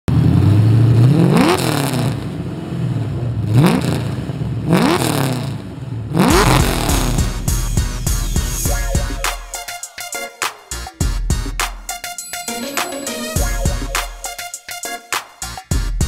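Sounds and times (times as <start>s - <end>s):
car engine idling and revving: 0.1s - 8.7s
music: 6.4s - 16.0s.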